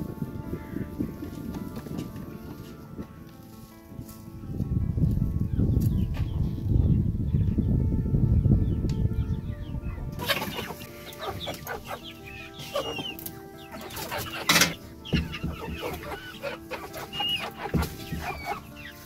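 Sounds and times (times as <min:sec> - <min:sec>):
hens clucking: 0:09.7 - 0:19.0.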